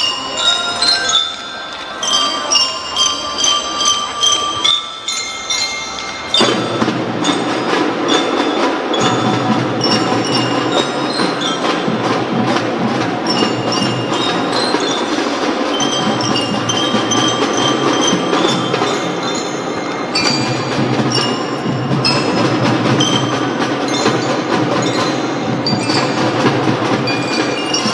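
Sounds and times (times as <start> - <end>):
bell lyres playing a melody: 0.0 - 27.9
marching toms: 1.8 - 27.9
snare drums: 6.3 - 27.9.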